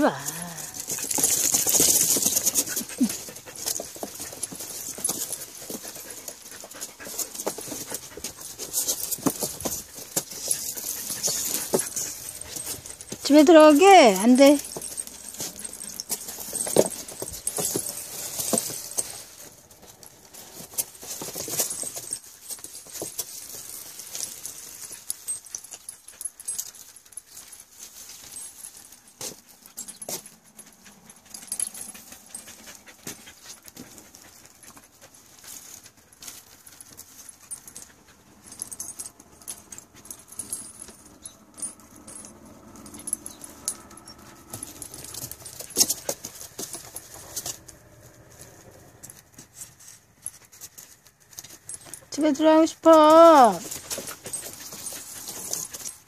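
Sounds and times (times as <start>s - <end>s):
metal leash clip jingling: 0.0s - 56.0s
dog panting: 0.8s - 13.2s, 29.7s - 35.9s.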